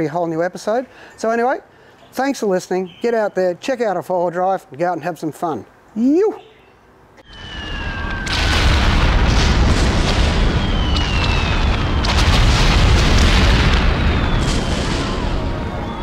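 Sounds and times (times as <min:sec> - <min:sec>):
faint falling whines: 0:07.2 - 0:16.0
loud rumbling rush: 0:07.3 - 0:16.0.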